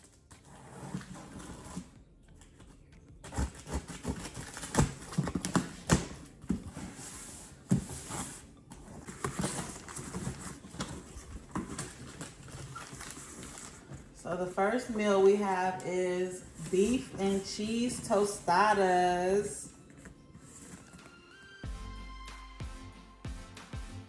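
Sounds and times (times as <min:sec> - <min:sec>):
cardboard scrapes and rustles: 0:00.3 - 0:02.0, 0:03.2 - 0:14.9, 0:19.9 - 0:21.1
scissors cutting cardboard: 0:03.1 - 0:14.1.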